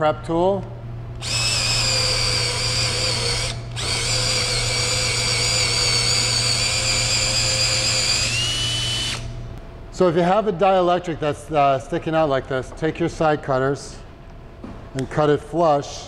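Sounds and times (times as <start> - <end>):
cordless drill whining: 1.2 - 9.4.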